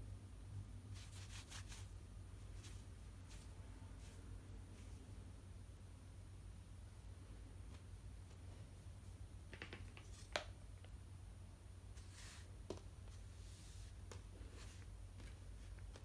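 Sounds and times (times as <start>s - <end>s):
steady low hum: 0.0s - 9.5s
fabric rustling: 1.0s - 5.0s.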